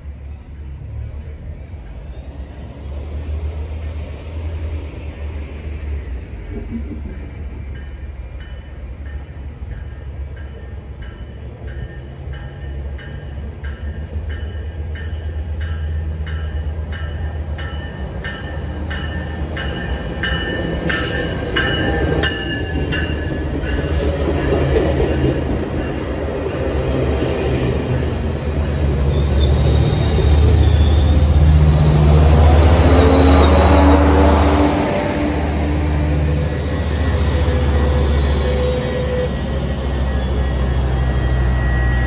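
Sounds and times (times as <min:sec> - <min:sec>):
train wheels rumbling: 0:00.8 - 0:42.0
crossing bell clanging: 0:07.3 - 0:27.0.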